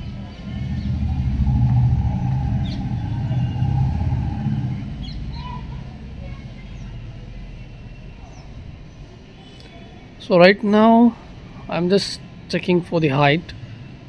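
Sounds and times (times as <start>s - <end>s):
motor vehicle engine rumble: 0.0s - 9.9s.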